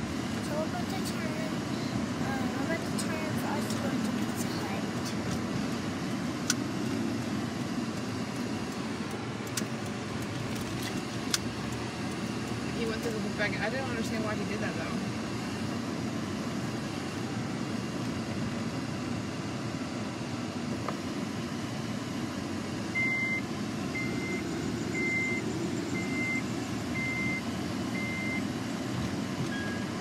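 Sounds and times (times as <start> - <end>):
car cabin noise: 0.0 - 18.8
car warning chime beeping: 22.9 - 28.5, 29.5 - 30.0
lower beep: 22.9 - 28.5, 29.5 - 30.0.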